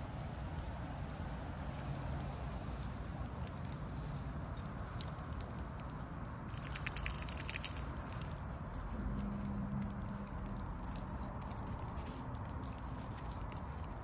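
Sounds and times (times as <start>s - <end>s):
low background noise: 0.0s - 14.0s
metallic jingling of keys: 6.4s - 9.5s, 11.1s - 14.0s.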